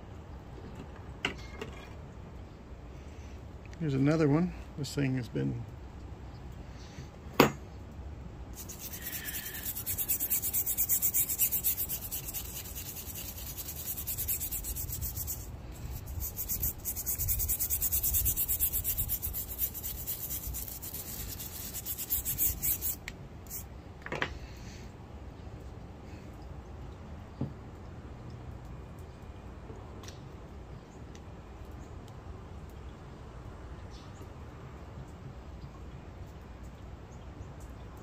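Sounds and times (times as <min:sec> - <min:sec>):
wire brush scrubbing metal: 0:08.6 - 0:23.6.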